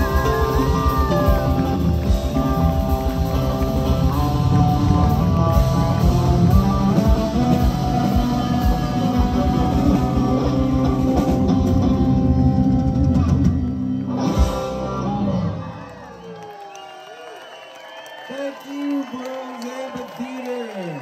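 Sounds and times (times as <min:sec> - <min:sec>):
drum kit: 0:00.0 - 0:15.6
bass guitar: 0:00.0 - 0:16.0
electric guitar: 0:00.0 - 0:16.3.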